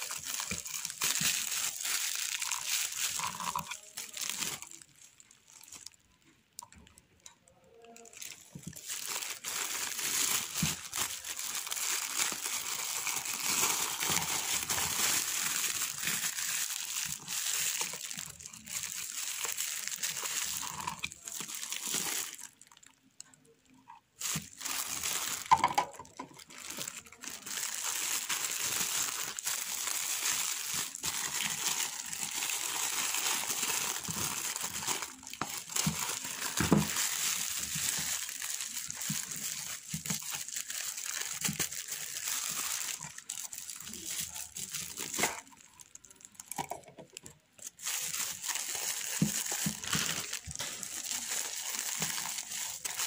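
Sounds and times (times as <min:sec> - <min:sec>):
plastic wrapping crinkling: 0:00.0 - 0:53.0.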